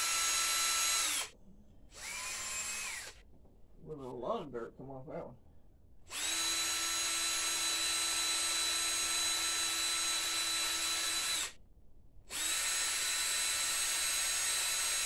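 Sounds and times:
cordless drill whining: 0:00.0 - 0:03.2, 0:06.1 - 0:11.6, 0:12.3 - 0:15.0.

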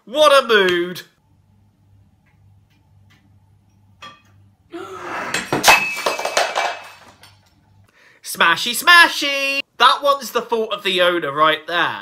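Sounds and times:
ceramic bowl crashing and breaking: 0:05.3 - 0:07.4.

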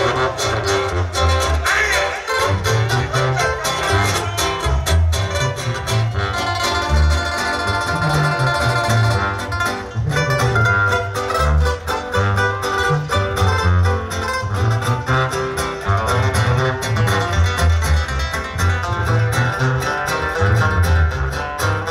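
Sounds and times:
live band music: 0:00.0 - 0:21.9.

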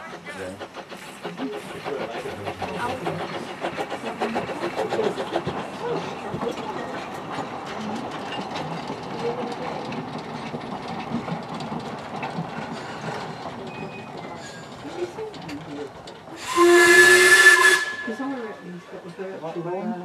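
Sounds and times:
train clattering on rails: 0:00.0 - 0:19.7
steam whistle blast: 0:16.4 - 0:18.4.

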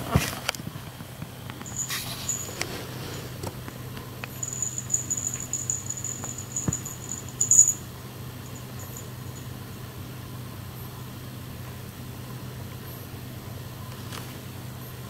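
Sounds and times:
low background hum: 0:00.0 - 0:15.0
loud rustle: 0:01.6 - 0:03.4.

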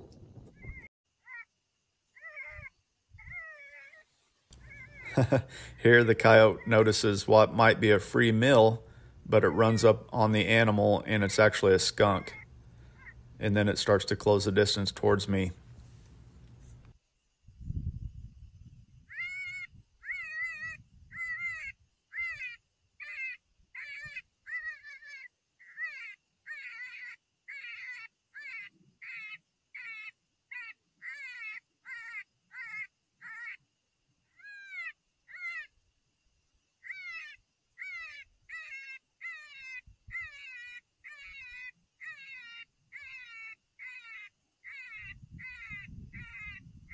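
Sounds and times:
wind rumble on microphone: 0:00.0 - 0:00.9, 0:17.4 - 0:20.0, 0:20.6 - 0:21.6, 0:45.0 - 0:46.9
electronic prey distress cries: 0:02.2 - 0:04.0, 0:04.6 - 0:07.6, 0:11.5 - 0:13.2, 0:19.1 - 0:33.6, 0:34.4 - 0:35.7, 0:36.8 - 0:46.9.

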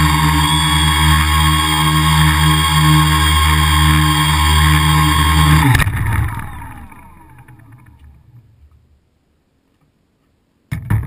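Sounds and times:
drone motors whining down: 0:00.0 - 0:08.4.

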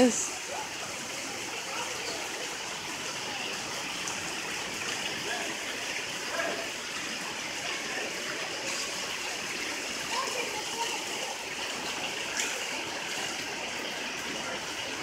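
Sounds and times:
heavy rain falling: 0:00.0 - 0:15.0.

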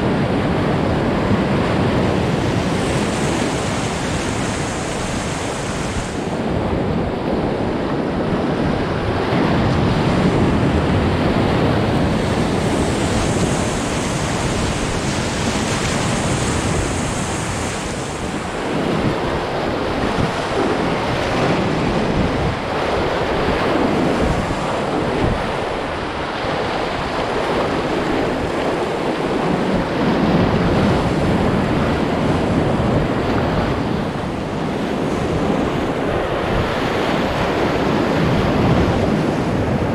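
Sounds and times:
river rapids rushing: 0:02.4 - 0:06.5, 0:08.8 - 0:32.2.

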